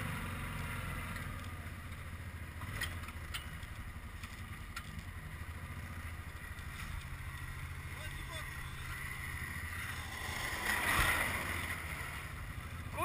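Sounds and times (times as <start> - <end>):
quad engine running: 0.0 - 13.0.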